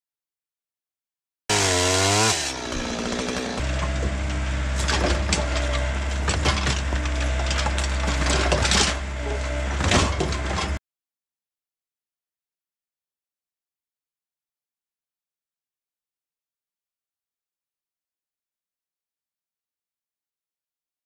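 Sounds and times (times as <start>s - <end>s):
chainsaw winding down: 1.5s - 9.0s
roots and wood cracking: 1.5s - 9.0s
excavator diesel engine: 1.5s - 10.8s.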